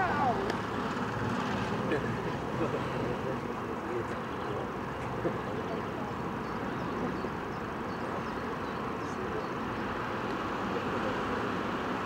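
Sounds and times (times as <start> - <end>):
distant traffic hum: 0.0 - 12.0.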